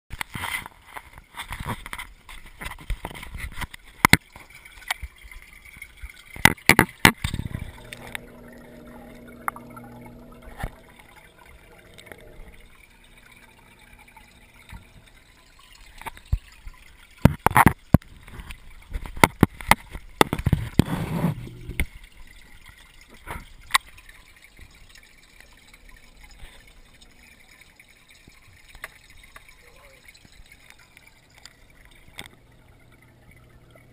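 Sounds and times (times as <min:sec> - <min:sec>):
water gurgling and trickling: 0:00.1 - 0:33.9
low hum: 0:07.3 - 0:16.0, 0:20.7 - 0:22.0.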